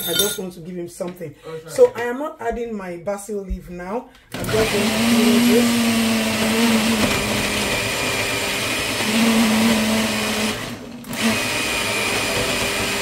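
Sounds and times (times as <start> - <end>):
blender running: 4.3 - 13.0.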